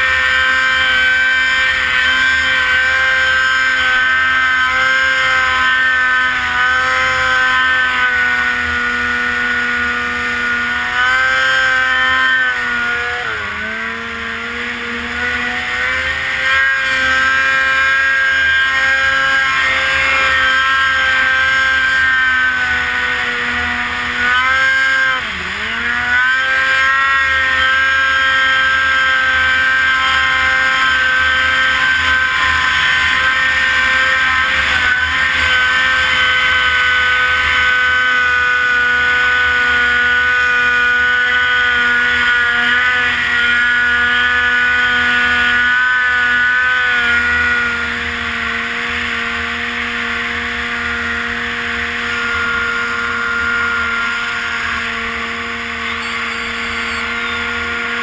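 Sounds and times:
snowmobile engine at high revs: 0.0 - 58.0.

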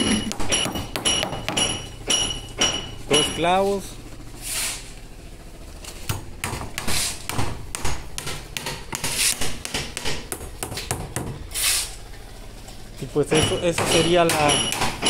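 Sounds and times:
hammer driving nails into wood: 6.1 - 11.4.

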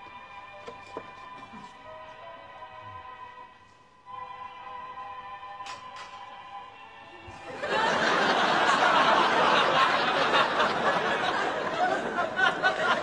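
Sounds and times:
audience laughing loudly: 7.4 - 13.0.

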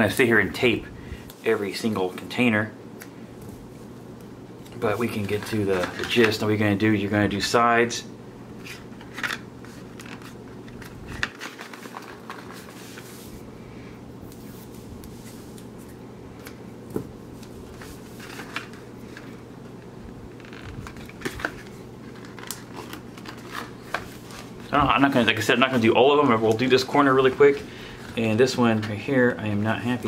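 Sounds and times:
low steady hum: 0.0 - 30.0
clicks and rustles of handling: 3.4 - 6.5, 8.6 - 13.3, 14.3 - 30.0.

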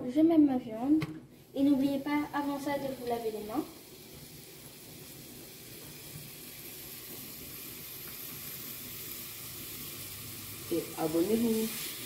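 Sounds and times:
meat sizzling in a frying pan: 1.3 - 12.0.

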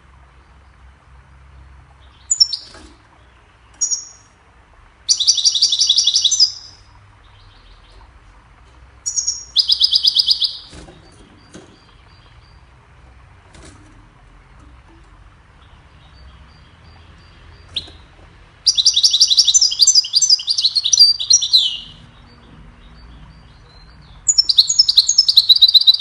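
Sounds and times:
bird high calls: 2.2 - 4.4, 5.1 - 8.1, 9.0 - 12.6, 16.0 - 26.0
bird rapid repeated notes: 9.1 - 12.6, 17.5 - 22.2, 24.3 - 26.0.

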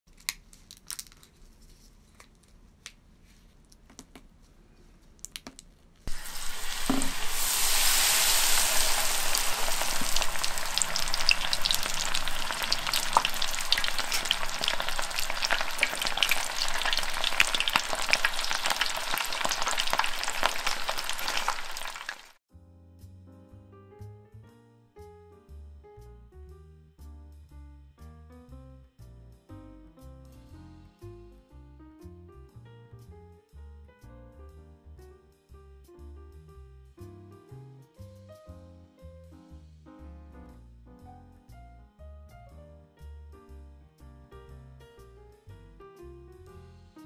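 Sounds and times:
deep-frying crackle and sizzle: 6.1 - 22.4.

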